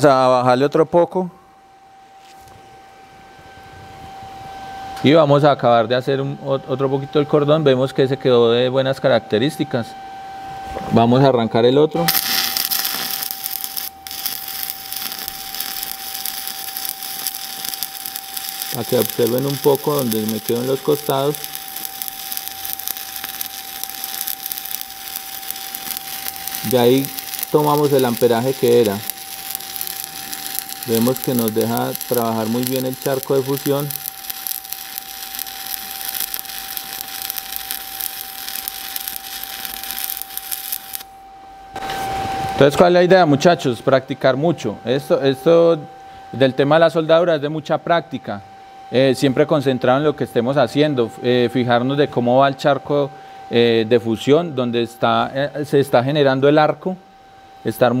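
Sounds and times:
welding arc crackling hiss: 12.0 - 41.2.

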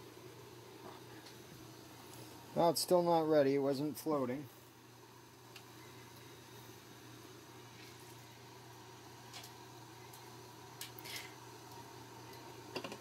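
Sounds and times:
steady low hum: 0.0 - 13.0
syrup boiling in pot: 4.6 - 13.0.

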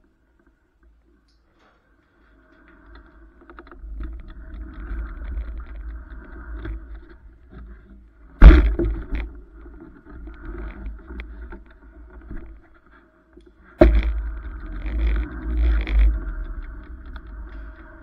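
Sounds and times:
camera rumble and rattling: 2.3 - 18.0
loud thump: 8.4 - 9.1.

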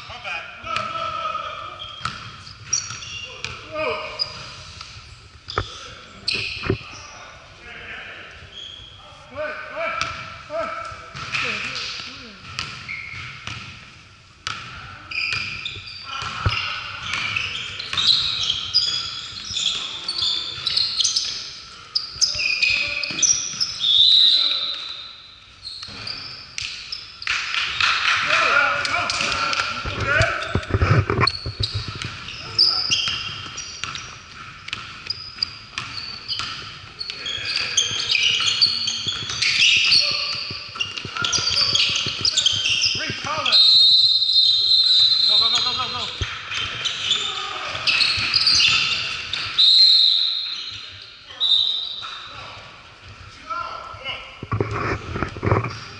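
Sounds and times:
sneakers squeaking on wood: 0.7 - 7.2, 8.5 - 9.1, 11.2 - 13.8, 14.5 - 27.3, 29.2 - 52.3
basketball bouncing: 2.0 - 3.6, 11.1 - 13.8, 30.5 - 36.9, 37.6 - 43.3
basketball bouncing on wood floor: 12.4 - 13.7, 37.9 - 43.3.

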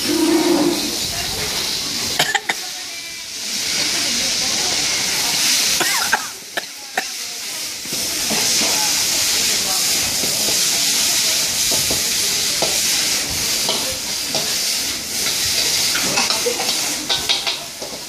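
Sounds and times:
metal ladle scraping a wok: 0.0 - 2.1, 12.6 - 17.5
vegetables sizzling in a wok: 0.0 - 18.0.

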